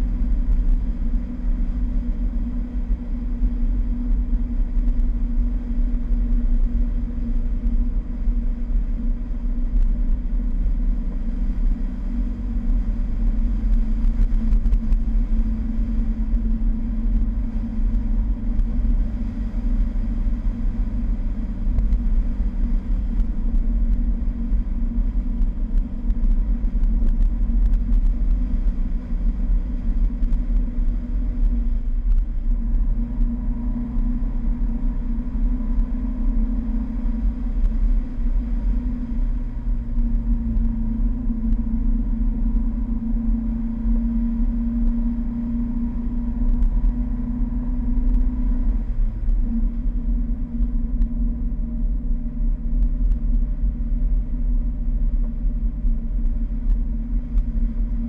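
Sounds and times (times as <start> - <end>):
car engine running: 0.0 - 58.0
wind rumble on microphone: 0.0 - 58.0.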